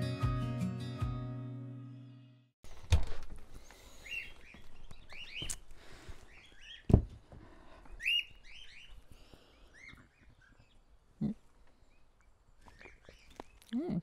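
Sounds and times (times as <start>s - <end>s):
songbirds chirping and singing: 3.6s - 13.7s.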